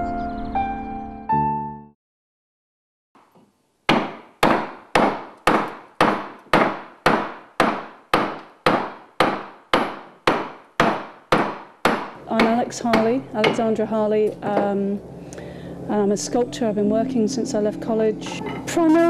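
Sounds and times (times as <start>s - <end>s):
mallet striking carving gouge: 3.9s - 13.7s.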